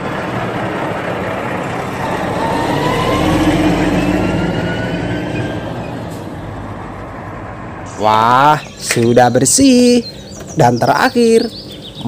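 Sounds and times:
tanker truck engine passing: 0.0s - 9.2s.

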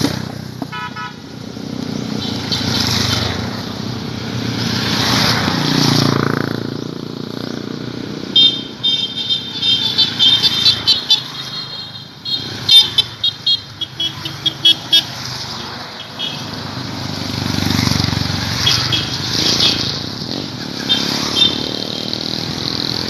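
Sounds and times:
motorcycles passing by: 0.0s - 23.0s
horns tooting: 0.6s - 1.4s, 8.3s - 16.7s, 18.2s - 22.3s.

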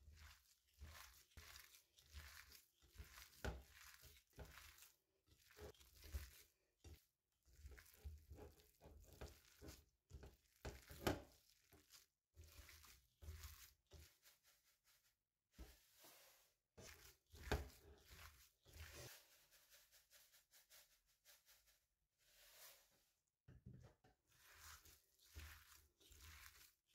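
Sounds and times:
squishing of raw meat: 0.0s - 15.0s, 16.8s - 19.2s, 24.3s - 26.9s
plastic glove rustling: 0.1s - 7.0s, 7.6s - 15.2s, 16.1s - 22.9s, 24.3s - 26.9s.

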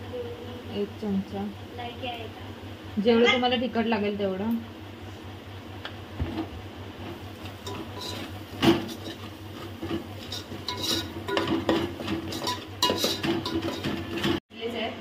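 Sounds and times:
metal spoon scraping a pot: 7.6s - 14.4s.

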